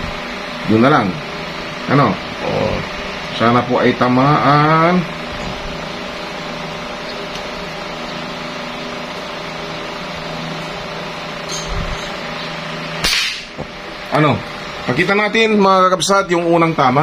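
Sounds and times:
steady machine hum: 0.0s - 17.0s
air rifle shot: 13.0s - 13.6s.

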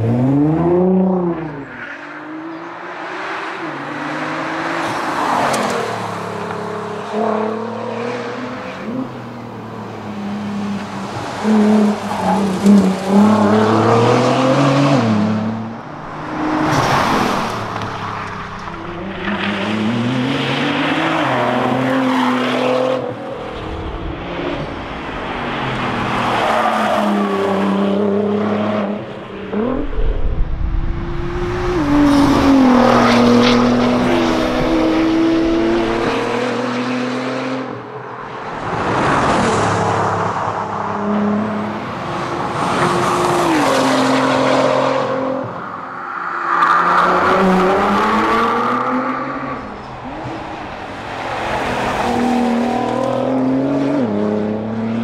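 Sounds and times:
rally car engine revving past: 27.9s - 37.7s.

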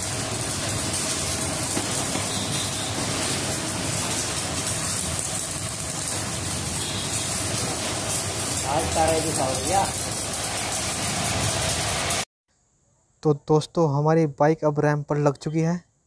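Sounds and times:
water jet hissing: 0.0s - 12.3s.

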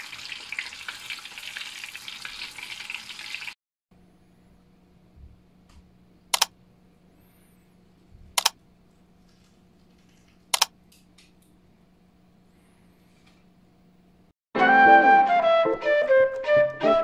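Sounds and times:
faint steady hum: 4.0s - 14.3s
sharp clicks: 6.3s - 6.5s, 8.4s - 8.6s, 10.5s - 10.7s.

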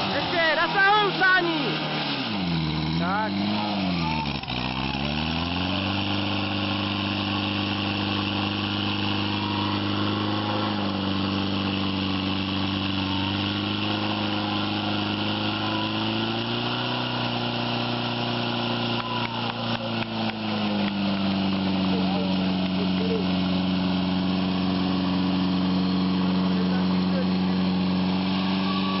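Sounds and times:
small petrol pump engine running: 0.0s - 29.0s.

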